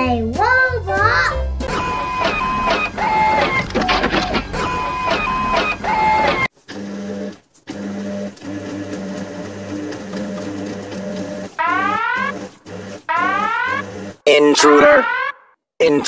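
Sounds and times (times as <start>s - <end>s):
electric motor whirring: 1.7s - 14.2s.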